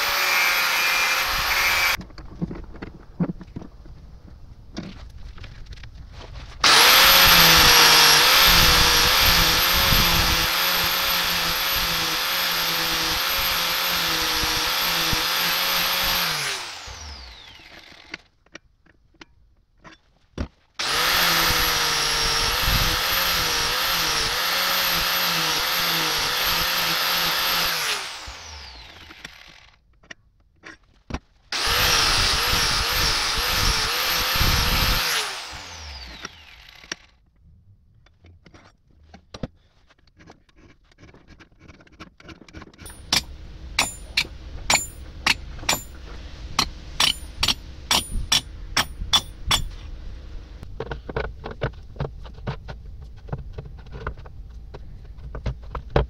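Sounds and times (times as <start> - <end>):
angle grinder grinding steel: 0.0 - 2.0, 6.6 - 18.2, 20.8 - 29.7, 31.6 - 37.0, 42.8 - 49.8.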